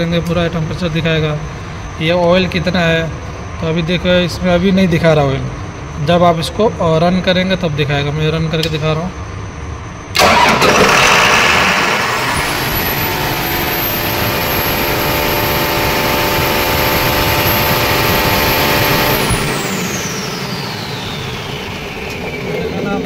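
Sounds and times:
high whine: 0:09.2 - 0:23.0
diesel engine running: 0:10.1 - 0:23.0.

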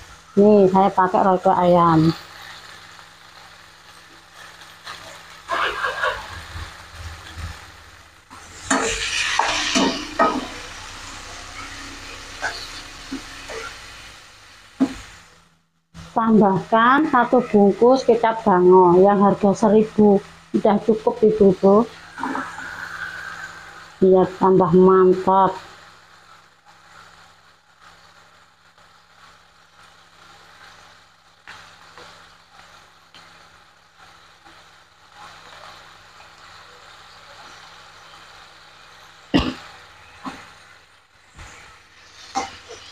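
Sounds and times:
tomatoes sizzling in oil: 0:00.0 - 0:42.9
spatula stirring and scraping: 0:08.4 - 0:10.8.

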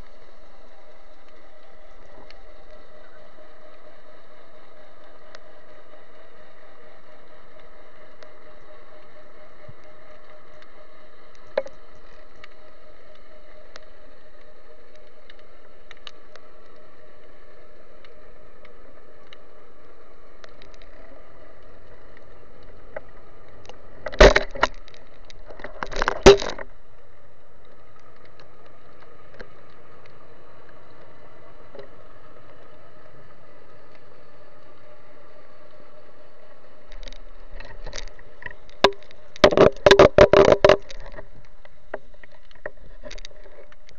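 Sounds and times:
faint underwater hum: 0:00.0 - 0:43.9
small clicks: 0:35.5 - 0:43.9.

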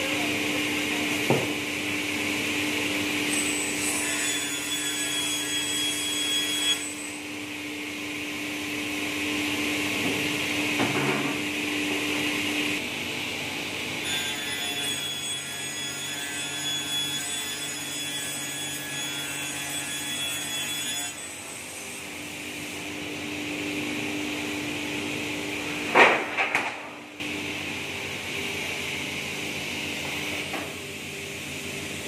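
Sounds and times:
panel saw cutting board: 0:03.3 - 0:07.0.

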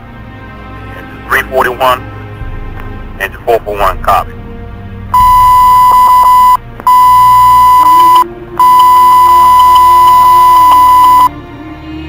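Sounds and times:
high-pitched radio alert beep: 0:05.2 - 0:11.3.

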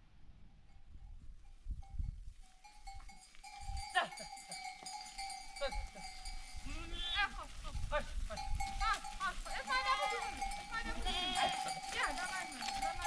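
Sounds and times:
livestock bells ringing: 0:00.7 - 0:13.0
animal bleat: 0:08.9 - 0:13.0.

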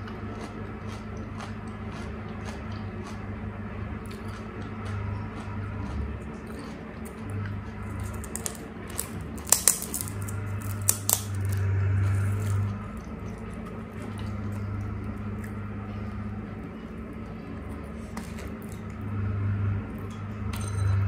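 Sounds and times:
steady low hum: 0:00.0 - 0:21.0
crisp shells cracking: 0:08.0 - 0:11.7.

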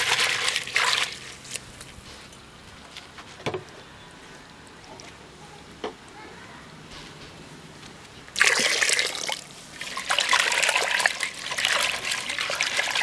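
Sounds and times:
water pouring and splashing: 0:00.0 - 0:02.0, 0:08.3 - 0:13.0.

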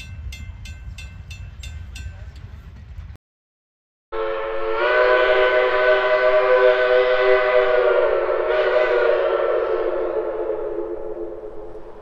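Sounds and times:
steam locomotive whistle chord: 0:04.1 - 0:12.0.

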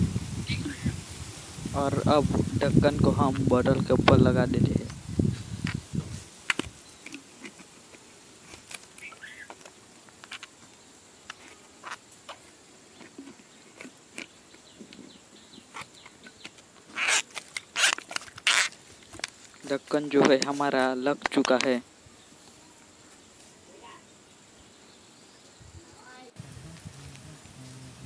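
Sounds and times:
plastic bottle crackling: 0:15.8 - 0:21.8.

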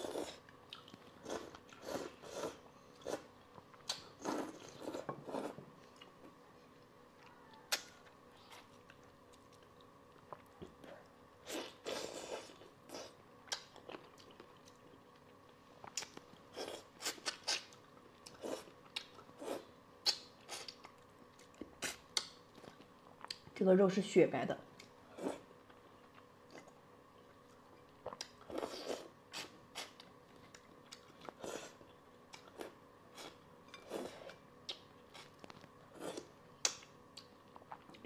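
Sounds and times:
wet chewing and sucking: 0:15.8 - 0:23.5.

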